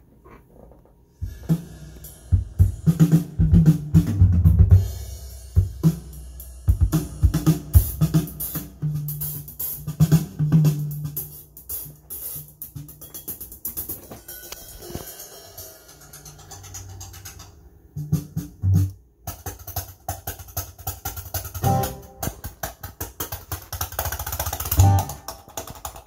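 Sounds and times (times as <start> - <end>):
drum-heavy music through speakers: 1.2 - 16.5, 21.6 - 22.4, 24.7 - 25.3.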